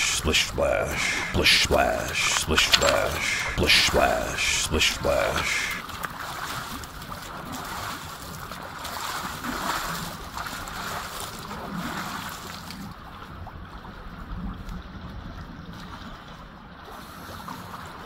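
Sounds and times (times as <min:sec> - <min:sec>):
small waves lapping on rocks: 0:05.8 - 0:14.2.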